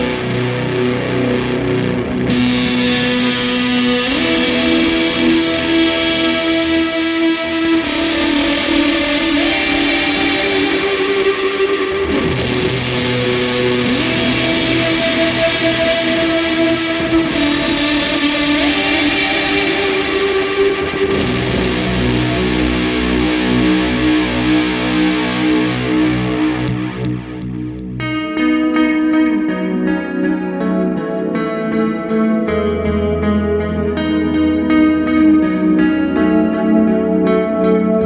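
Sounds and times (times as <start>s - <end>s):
distorted electric guitar chords: 0.0s - 38.0s.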